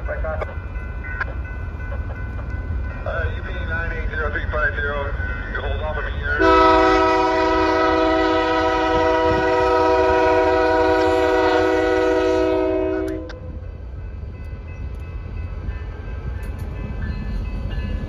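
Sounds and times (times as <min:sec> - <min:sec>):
train rumbling: 0:00.0 - 0:18.0
locomotive air horn chord: 0:06.4 - 0:13.4.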